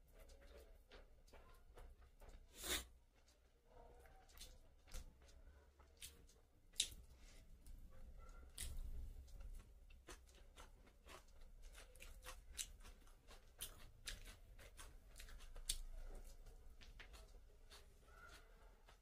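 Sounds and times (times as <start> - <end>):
fingers mixing food on a plate: 0.0 - 19.0
wet chewing smacks: 0.1 - 19.0.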